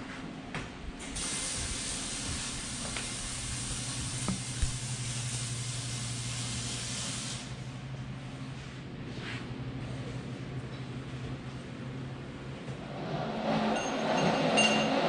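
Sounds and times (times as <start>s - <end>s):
steady hiss: 1.0s - 7.7s.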